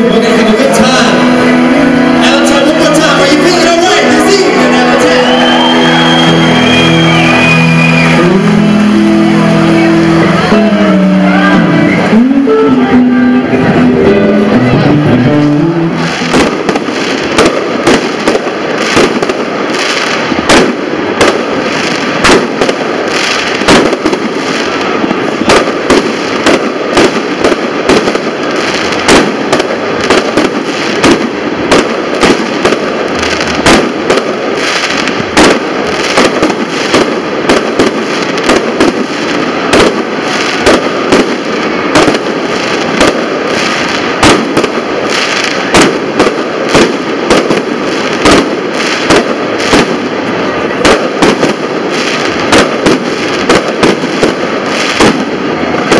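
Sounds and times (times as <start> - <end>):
music: 0.0 - 17.7
fireworks bangs: 0.0 - 55.9
steady rushing noise: 0.0 - 55.9.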